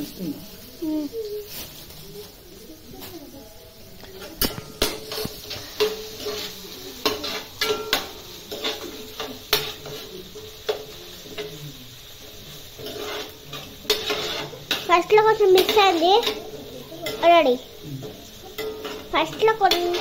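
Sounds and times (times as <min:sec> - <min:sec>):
frying sizzle: 0:00.0 - 0:20.0
metal spatula scraping pan: 0:04.2 - 0:11.6, 0:12.6 - 0:17.4, 0:18.0 - 0:20.0.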